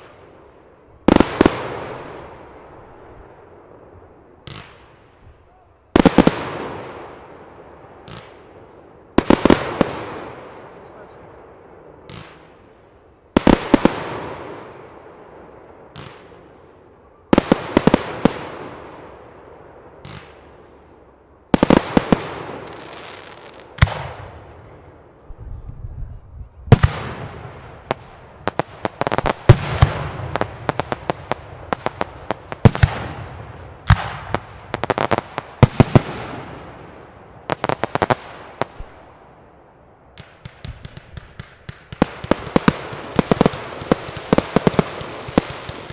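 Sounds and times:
fireworks bursting with bangs: 0:00.0 - 0:25.4, 0:26.7 - 0:45.9.

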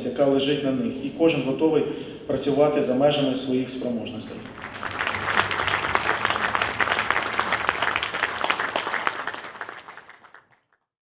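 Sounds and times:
audience applauding: 0:04.4 - 0:10.6.

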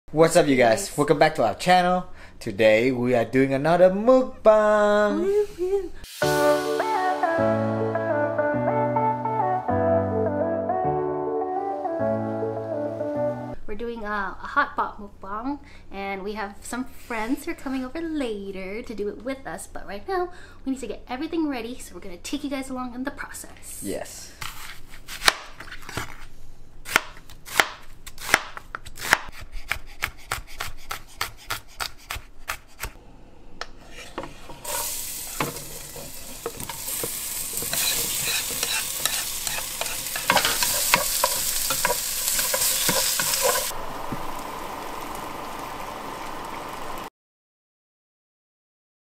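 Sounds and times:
food sizzling in a pan: 0:05.2 - 0:07.6, 0:33.9 - 0:47.1
knife chopping on cutting board: 0:26.9 - 0:33.0
stirring clatter: 0:33.9 - 0:43.7.

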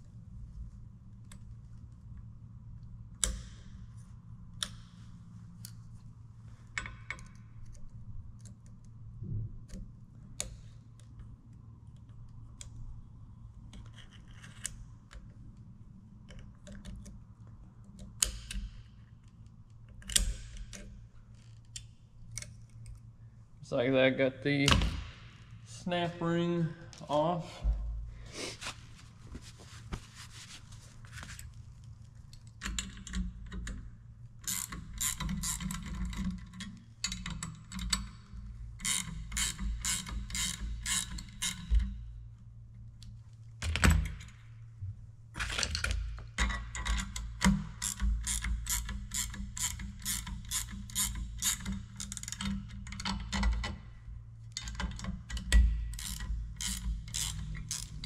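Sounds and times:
ratcheting wrench clicking: 0:34.4 - 0:38.2, 0:38.8 - 0:42.0, 0:46.4 - 0:53.7, 0:54.5 - 0:58.0.

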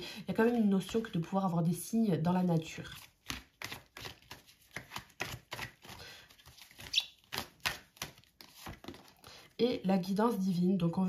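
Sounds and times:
cards clicking and slapping: 0:03.0 - 0:09.2.

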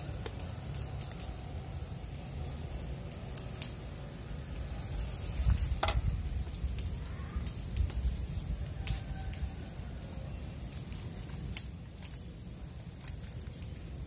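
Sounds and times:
faint high whine: 0:00.0 - 0:08.4.

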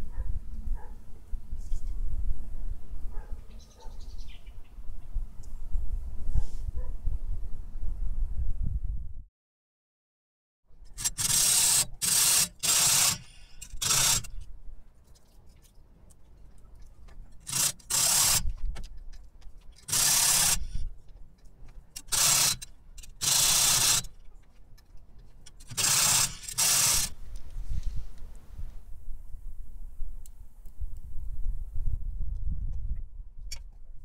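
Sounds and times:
hacksaw cutting metal: 0:10.8 - 0:14.5, 0:17.1 - 0:18.6, 0:19.6 - 0:27.2.

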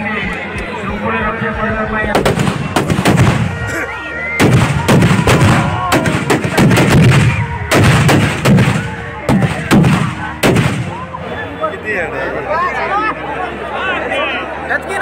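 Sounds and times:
firecrackers banging: 0:02.1 - 0:03.8, 0:04.4 - 0:11.1.

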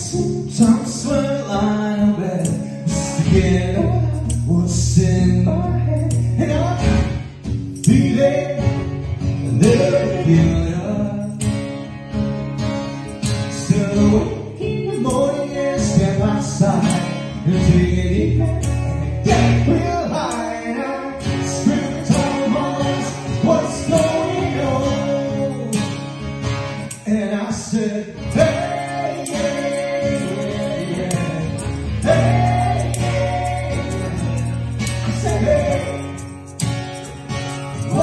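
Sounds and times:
woman and man singing: 0:00.0 - 0:06.8, 0:09.5 - 0:11.3, 0:13.6 - 0:25.8, 0:27.1 - 0:36.2
acoustic guitar: 0:00.0 - 0:38.0.

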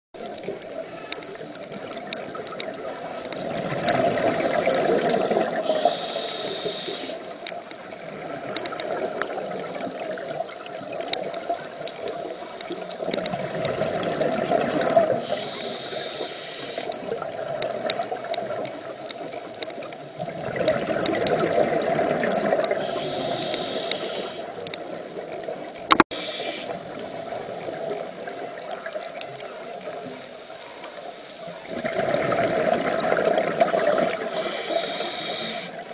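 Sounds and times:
regulator hiss: 0:05.6 - 0:07.9, 0:15.1 - 0:17.2, 0:22.7 - 0:24.6, 0:26.1 - 0:27.4, 0:34.1 - 0:35.9.

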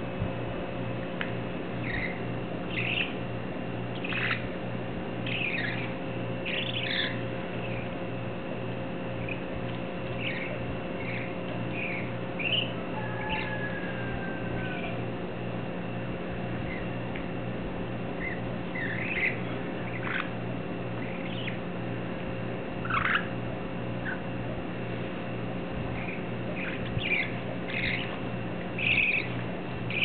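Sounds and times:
low pulsing hum: 0:00.0 - 0:30.0
bird chicks chirping: 0:01.8 - 0:03.2, 0:03.9 - 0:04.6, 0:05.2 - 0:08.0, 0:09.0 - 0:15.0, 0:16.5 - 0:17.2, 0:18.1 - 0:21.8, 0:22.8 - 0:24.4, 0:25.9 - 0:30.0.

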